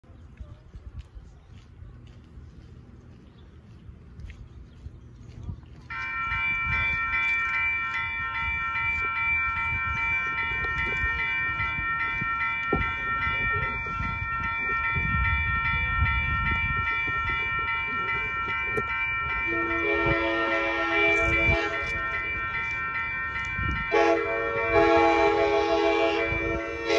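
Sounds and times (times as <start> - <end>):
railroad crossing bell ringing: 5.9 - 26.9.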